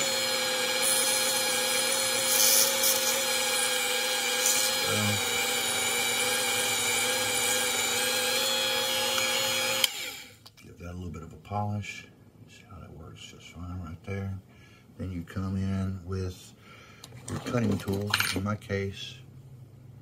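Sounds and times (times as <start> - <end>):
rotary tool whining: 0.0 - 10.4.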